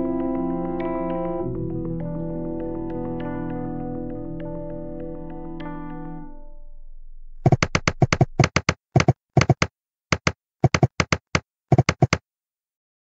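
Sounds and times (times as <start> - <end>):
keyboard typing clicks: 7.5 - 12.2.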